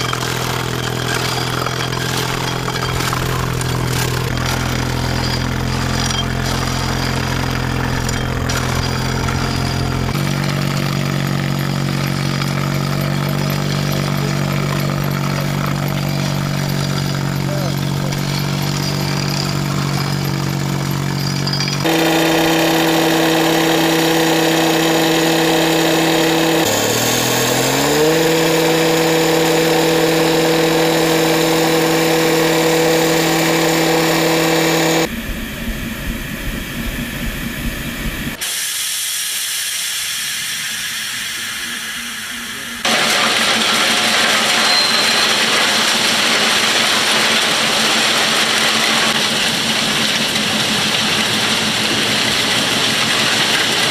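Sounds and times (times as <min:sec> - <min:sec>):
freight wagon rolling on rails: 0:00.0 - 0:35.1, 0:42.8 - 0:53.9
cut-off saw whining: 0:00.0 - 0:53.9.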